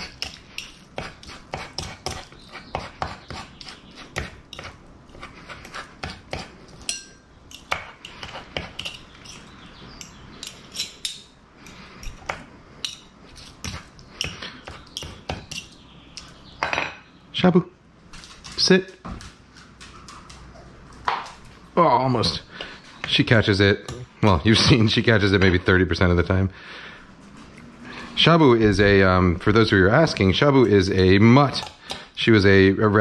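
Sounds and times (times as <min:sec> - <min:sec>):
forks scraping on cutting board: 0:00.0 - 0:15.8.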